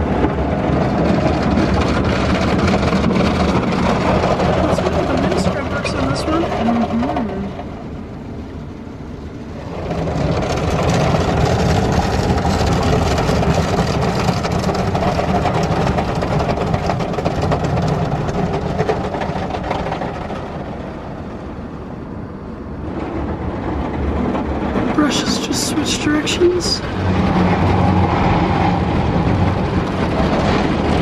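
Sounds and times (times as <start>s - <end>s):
car wash brushes and water spray: 9.5s - 20.8s.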